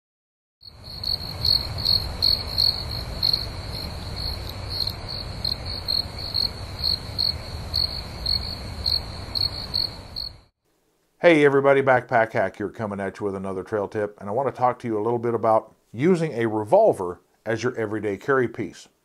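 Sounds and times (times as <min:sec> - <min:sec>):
crickets chirping: 0:00.6 - 0:10.5.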